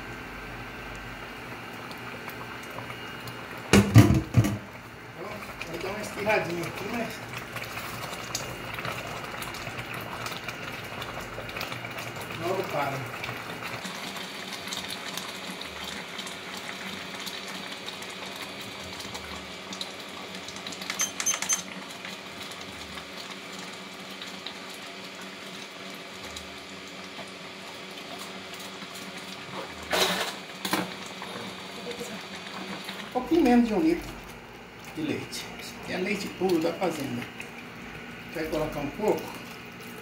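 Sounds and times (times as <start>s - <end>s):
induction cooktop humming: 0.0s - 40.0s
rice bubbling in a pot: 0.0s - 40.0s
short high beep: 21.0s - 21.6s.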